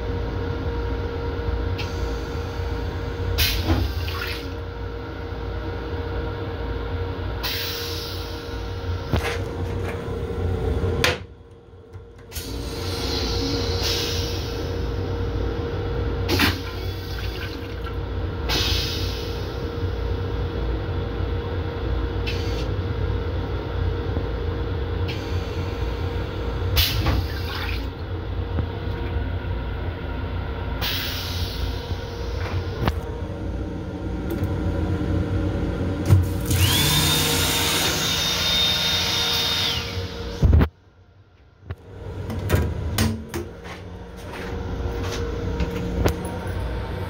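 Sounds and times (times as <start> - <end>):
toilet flushing with high whine: 0.0 - 40.6, 41.9 - 47.0
train rumble: 6.4 - 15.7, 41.7 - 47.0.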